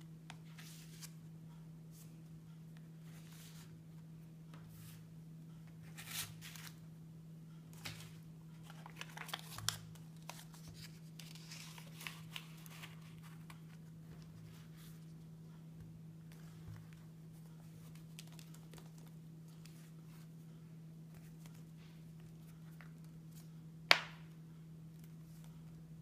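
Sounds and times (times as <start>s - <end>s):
steady low hum: 0.0s - 26.0s
paper banknote crinkling: 7.8s - 13.8s
plastic cards scraping: 8.6s - 13.6s.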